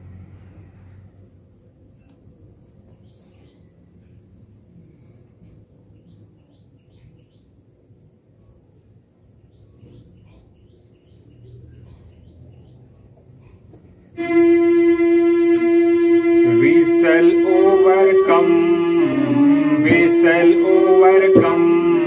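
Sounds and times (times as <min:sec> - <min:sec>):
bird chirps: 0:05.9 - 0:07.6, 0:08.4 - 0:13.6
electronic keyboard held note: 0:14.1 - 0:22.0
man singing: 0:15.9 - 0:22.0.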